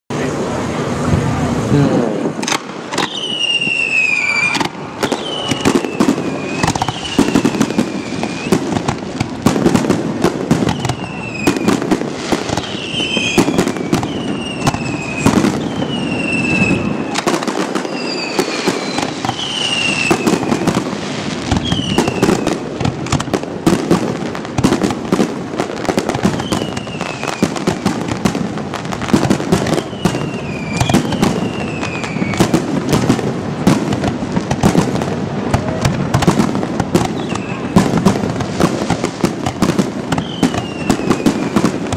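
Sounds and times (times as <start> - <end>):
fireworks bangs and crackles: 0.1 - 41.9
shrill falling whistle: 3.0 - 8.6, 12.6 - 17.2, 17.9 - 20.7, 26.4 - 27.5, 29.8 - 32.5.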